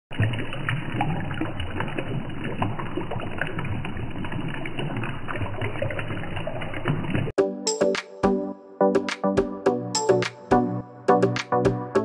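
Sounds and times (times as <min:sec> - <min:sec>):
water dripping: 0:00.1 - 0:07.4
water trickling in small fountain: 0:00.1 - 0:07.4.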